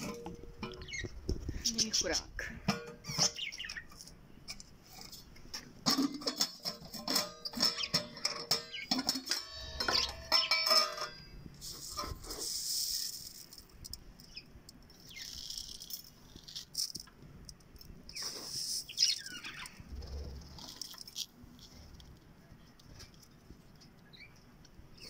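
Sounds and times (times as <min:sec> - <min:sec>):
parrots chattering: 0:00.6 - 0:02.1, 0:03.1 - 0:03.9.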